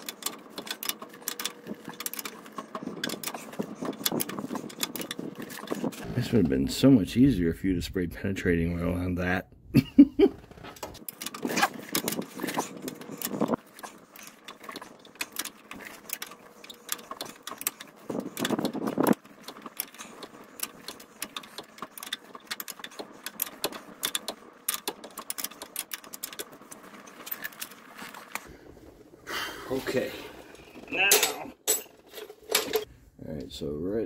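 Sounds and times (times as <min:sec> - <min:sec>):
ratcheting wrench clicking: 0:10.5 - 0:27.7.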